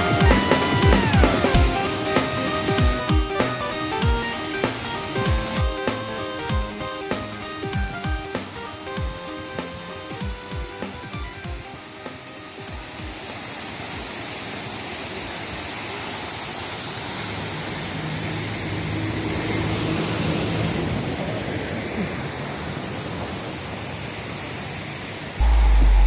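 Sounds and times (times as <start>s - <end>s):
river rushing: 0.0s - 26.0s
loud low rumble: 25.4s - 26.0s.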